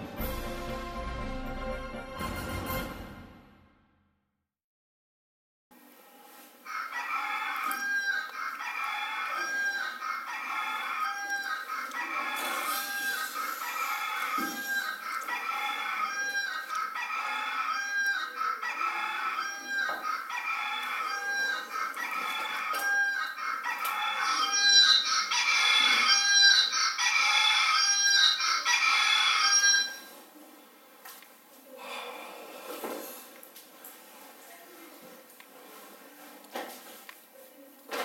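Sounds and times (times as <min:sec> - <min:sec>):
rooster crowing: 0:06.6 - 0:30.1
hens clucking: 0:06.7 - 0:30.1.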